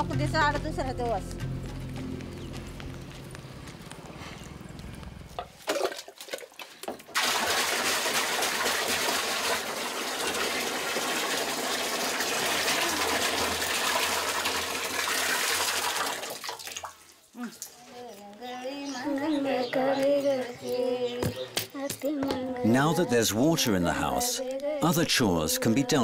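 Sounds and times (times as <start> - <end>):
water pouring into plastic drum: 5.4 - 17.1.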